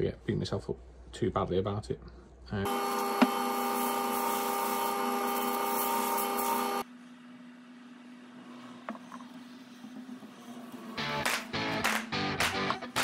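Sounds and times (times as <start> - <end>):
wood lathe whine: 2.7 - 6.8
sanding hiss: 2.9 - 6.8.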